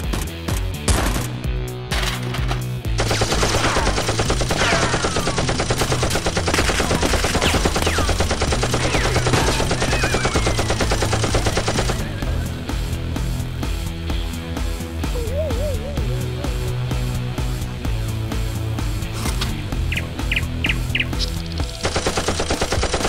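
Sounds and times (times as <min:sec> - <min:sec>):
action music: 0:00.0 - 0:23.0
automatic gunfire: 0:03.0 - 0:12.1, 0:21.8 - 0:23.0.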